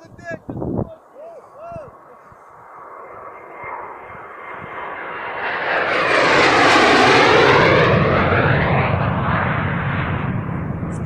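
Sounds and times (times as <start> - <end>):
jet aircraft passing low: 0.0 - 11.0.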